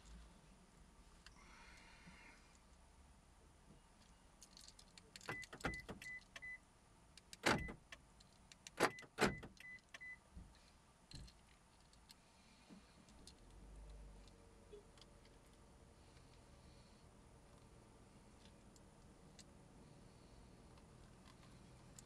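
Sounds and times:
car door locks clunking: 5.3s - 6.2s, 7.4s - 8.0s, 8.8s - 9.6s.

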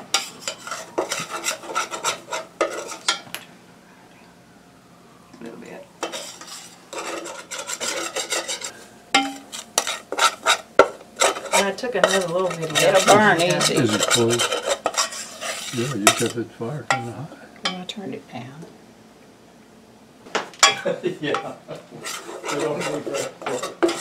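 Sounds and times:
metal spoon scraping a saucepan: 0.0s - 3.2s, 6.0s - 17.2s, 22.0s - 24.0s.

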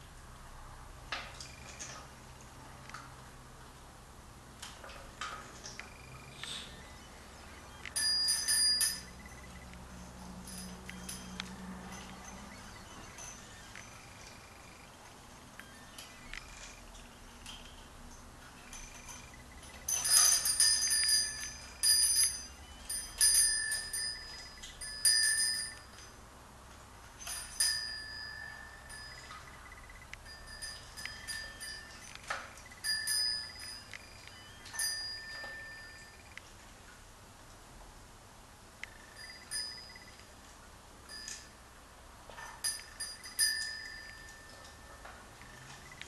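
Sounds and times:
small metal bell ringing: 7.6s - 9.7s, 10.3s - 14.9s, 18.6s - 26.2s, 27.2s - 36.4s, 38.9s - 40.2s, 41.1s - 41.6s, 42.4s - 45.8s.

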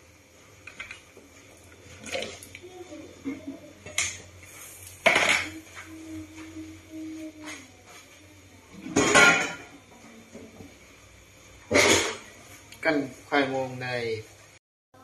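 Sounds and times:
metal ladle clattering on pot: 8.9s - 9.7s.

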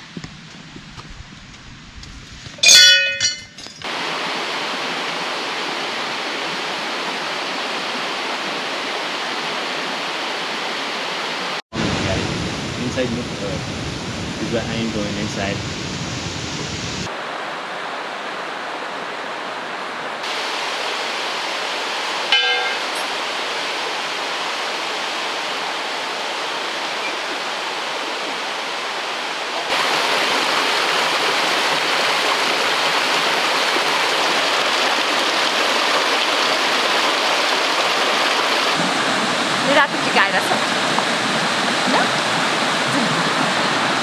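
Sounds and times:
rush of flowing water: 2.6s - 44.0s.

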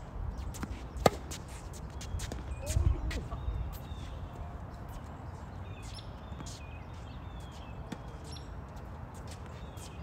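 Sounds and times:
small birds chirping: 0.2s - 10.0s
tennis ball bouncing on court: 0.5s - 3.4s.

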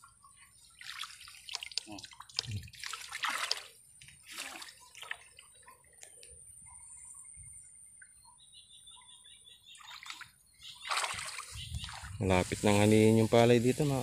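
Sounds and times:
water splashing and sloshing: 0.0s - 6.3s, 9.8s - 12.3s.

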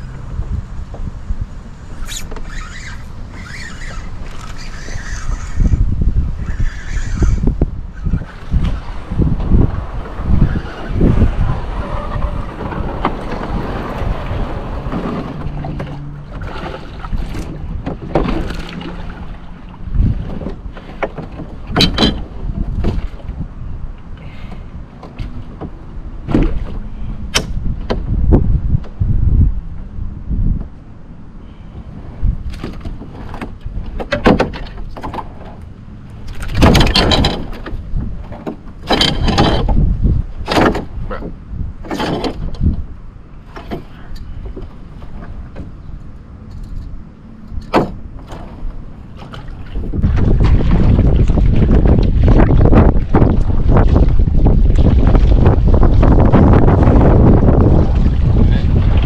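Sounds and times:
wind buffeting microphone: 0.0s - 59.0s
knocks and rattles in a canoe: 2.0s - 30.9s, 32.0s - 59.0s
sharp clicks and knocks: 20.4s - 22.2s, 32.5s - 39.8s, 40.4s - 42.8s.

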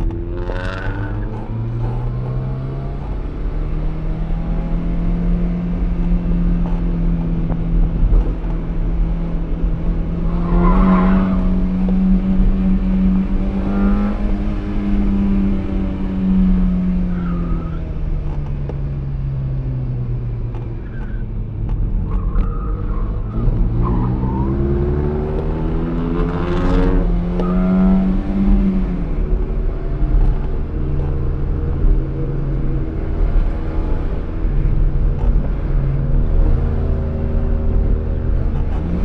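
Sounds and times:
car engine revving under load: 20.1s - 39.0s.

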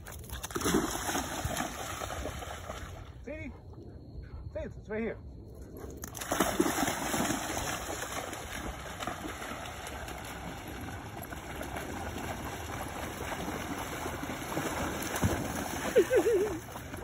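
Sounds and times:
river water rushing and gurgling: 6.4s - 17.0s.

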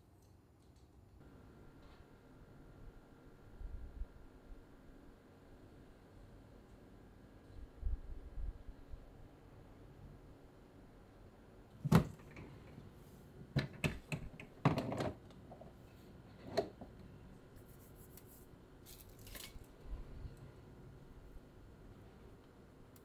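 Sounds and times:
cabinet knocks and clatters: 11.8s - 12.5s, 13.6s - 15.2s.

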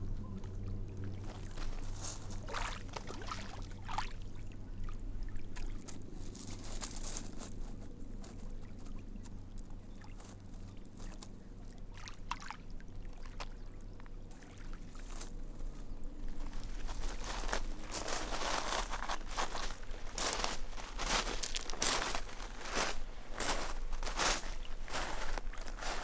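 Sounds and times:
lake water lapping at shore: 0.0s - 26.0s
steady low hum: 0.0s - 26.0s.

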